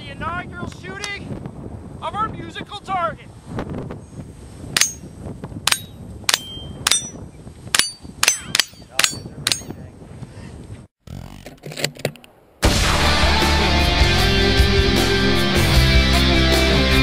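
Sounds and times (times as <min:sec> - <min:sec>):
ringing notes from metal target: 0:04.8 - 0:05.1, 0:05.7 - 0:07.2, 0:07.8 - 0:09.8.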